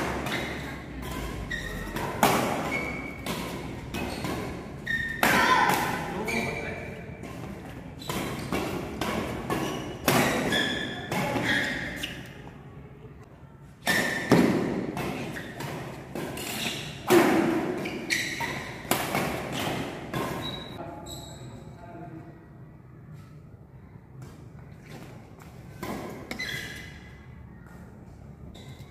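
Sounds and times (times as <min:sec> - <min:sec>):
rackets hitting shuttlecock: 0:00.0 - 0:12.0, 0:13.8 - 0:20.8.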